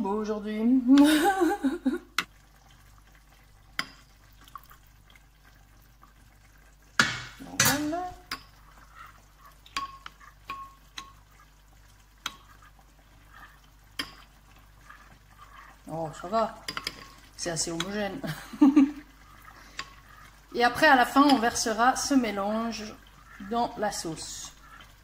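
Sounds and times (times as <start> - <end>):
pot clunk: 7.0 - 8.5
metal spoon clinking and scraping bowl: 9.7 - 11.2.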